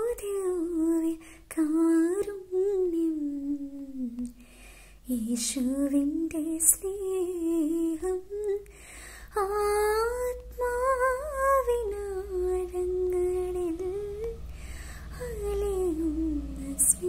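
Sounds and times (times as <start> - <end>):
quick breath: 4.4 - 5.0, 8.7 - 9.3, 14.5 - 15.1
woman singing solo: 9.4 - 17.0.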